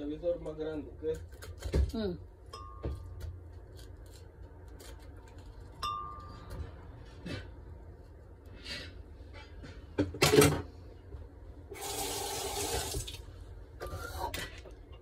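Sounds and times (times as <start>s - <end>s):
water pouring: 11.7s - 13.2s.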